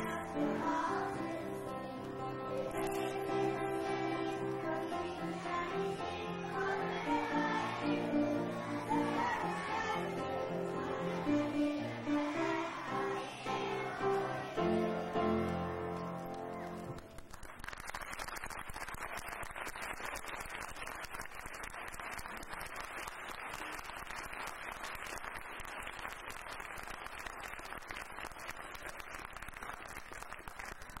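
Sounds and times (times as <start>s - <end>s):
audience applauding: 14.7s - 31.0s.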